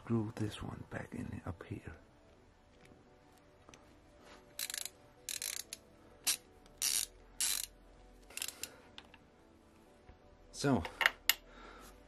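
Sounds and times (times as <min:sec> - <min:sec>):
socket ratchet clicking: 0:04.6 - 0:08.7.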